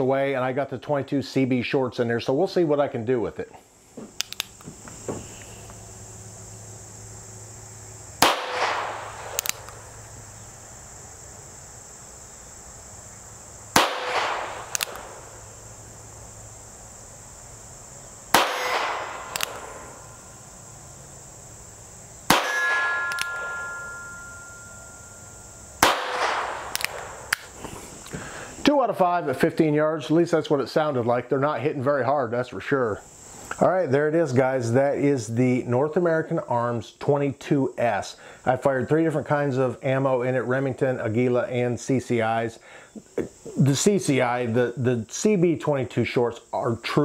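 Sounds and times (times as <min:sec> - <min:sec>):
revolver shots: 0:08.2 - 0:09.4, 0:13.8 - 0:15.3, 0:18.3 - 0:20.0, 0:25.8 - 0:27.4
steel target ringing: 0:18.4 - 0:20.3, 0:22.3 - 0:27.3.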